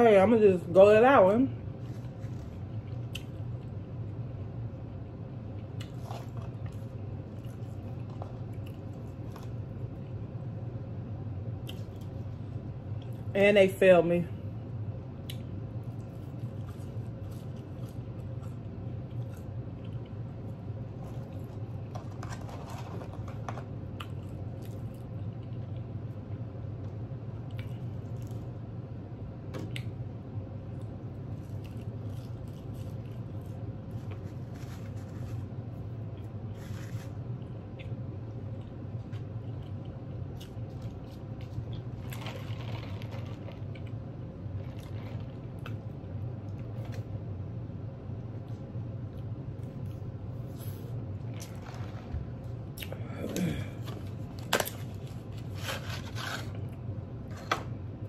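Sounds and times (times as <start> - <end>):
low steady hum: 0.0 - 58.0
crunchy chewing: 15.2 - 25.9, 30.7 - 47.1.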